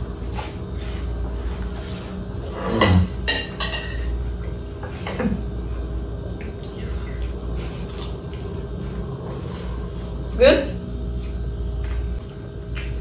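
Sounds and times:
cutlery clinking on dishes: 2.8s - 4.1s.

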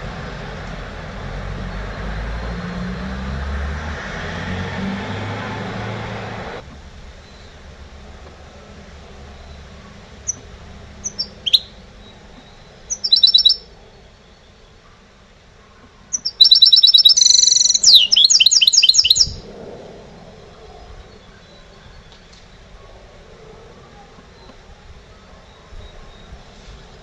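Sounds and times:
finch singing: 9.2s - 14.8s, 15.8s - 19.5s.

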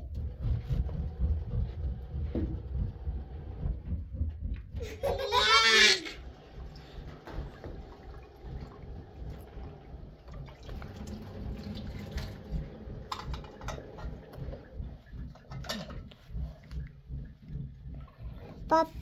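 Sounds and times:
tap water running into sink: 4.8s - 18.6s.

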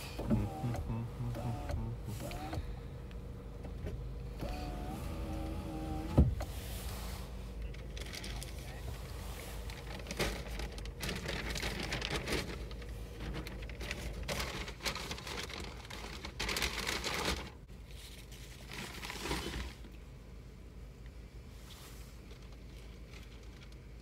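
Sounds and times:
plastic bags rustling: 7.2s - 20.0s.

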